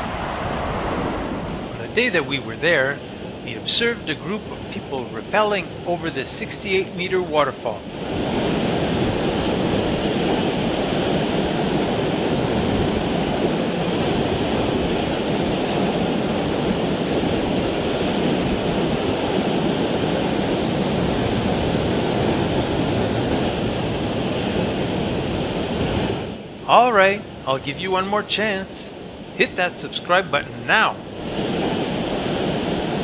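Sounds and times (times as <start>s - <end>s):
waterfall rushing: 0.0s - 3.2s.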